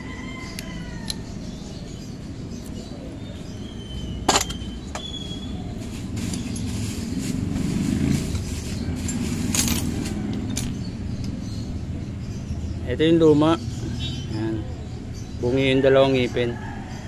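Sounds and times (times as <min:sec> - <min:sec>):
metal gears clinking: 0:08.9 - 0:10.8.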